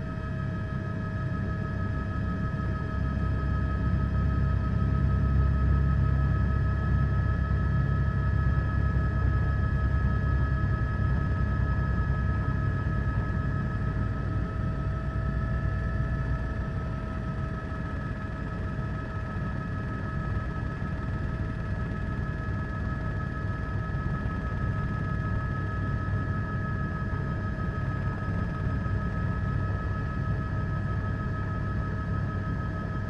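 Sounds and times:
helicopter rumble and whine: 0:00.0 - 0:33.0.

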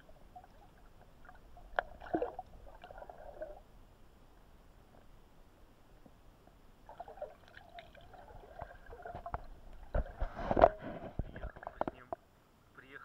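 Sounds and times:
water splashes: 0:00.0 - 0:03.6, 0:06.8 - 0:10.4
muffled underwater water sloshing: 0:00.0 - 0:05.2, 0:06.0 - 0:12.1.

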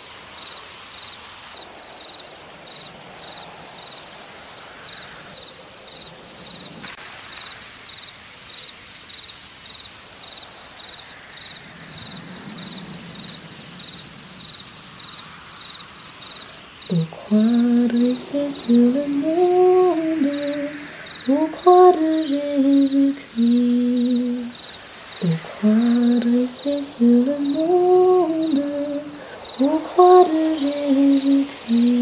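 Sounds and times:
cricket chirping: 0:00.0 - 0:32.0
soft hiss: 0:00.0 - 0:32.0.

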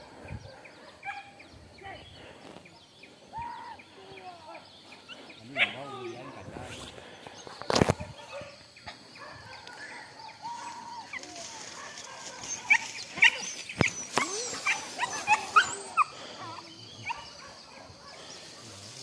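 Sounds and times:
dogs yelping: 0:09.2 - 0:18.6.

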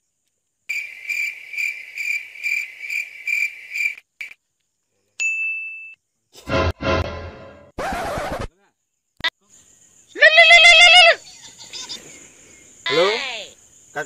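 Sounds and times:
cricket chirping: 0:00.0 - 0:05.2, 0:05.8 - 0:06.5, 0:08.5 - 0:14.0
loud burst of sound: 0:06.5 - 0:08.2.

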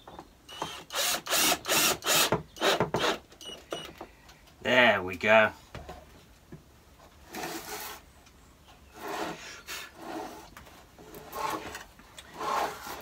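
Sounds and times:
wood rubbing and scraping: 0:07.0 - 0:08.2, 0:08.8 - 0:13.0.

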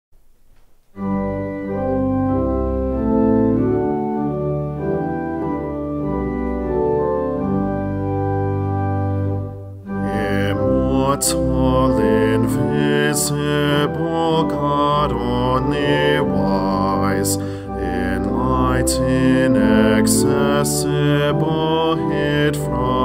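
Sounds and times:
organ playing sustained chords: 0:00.8 - 0:23.0
bass voice singing: 0:09.9 - 0:23.0.

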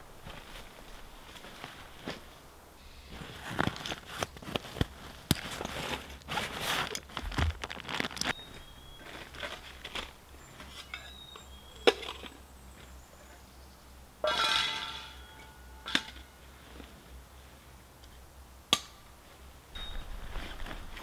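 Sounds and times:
fabric rustling: 0:00.2 - 0:02.4, 0:03.1 - 0:10.2, 0:20.0 - 0:21.0.

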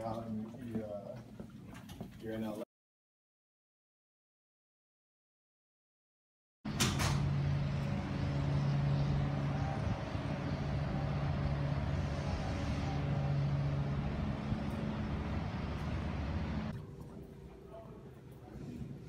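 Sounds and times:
low mechanical hum: 0:06.7 - 0:19.0.

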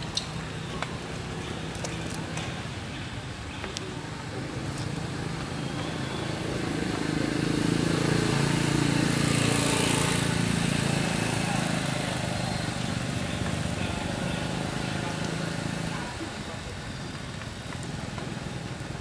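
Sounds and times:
vehicle engine passing by: 0:04.6 - 0:16.2.

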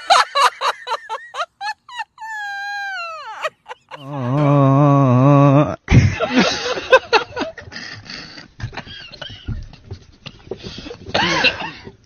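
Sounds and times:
breathy squeaky sounds: 0:00.0 - 0:04.9.

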